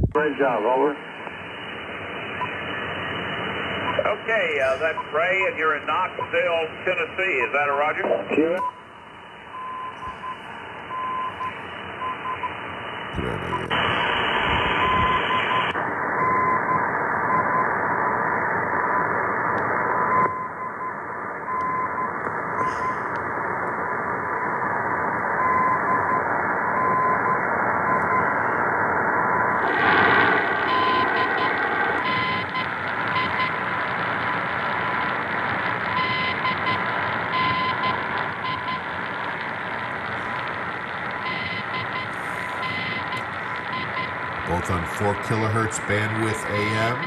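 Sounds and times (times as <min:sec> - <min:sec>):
radio static and hiss: 0:00.0 - 0:08.7, 0:09.4 - 0:47.0
steady whistle tone: 0:29.3 - 0:33.6.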